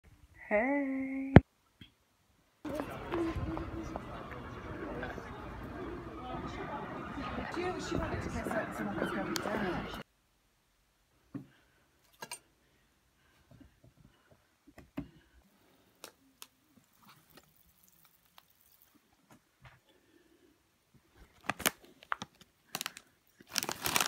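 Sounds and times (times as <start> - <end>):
foil crisp packet crinkling: 16.4 - 19.0, 21.3 - 24.0.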